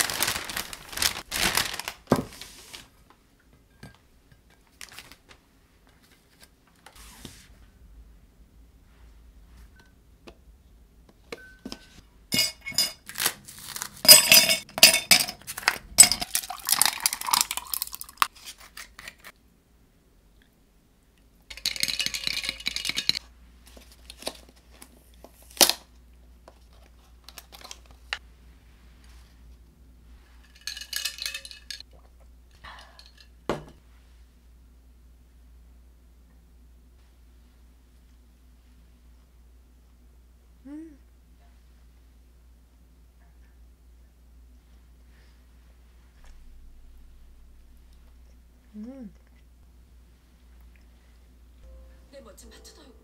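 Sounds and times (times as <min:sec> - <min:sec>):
paper bags rustling and crinkling: 0:00.0 - 0:03.0, 0:04.7 - 0:05.4
plate and containers clinking: 0:11.4 - 0:13.0, 0:14.0 - 0:17.9.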